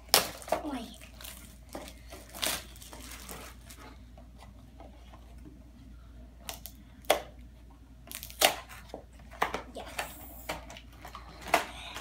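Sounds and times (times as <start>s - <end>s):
plastic wrapping crinkling: 0.0s - 4.0s.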